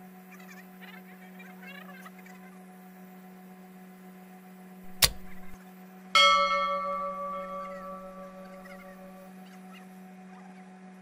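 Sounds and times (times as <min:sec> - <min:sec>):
sharp click: 0:04.9 - 0:05.6
bell-like chime: 0:06.2 - 0:09.2
steady low hum: 0:06.2 - 0:09.2.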